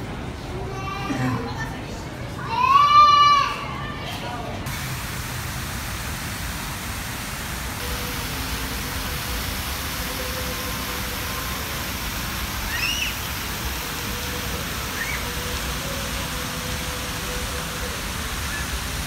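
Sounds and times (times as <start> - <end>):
fountain water splashing on stone: 4.7 - 19.0
high chirps: 12.6 - 13.3, 14.8 - 15.6.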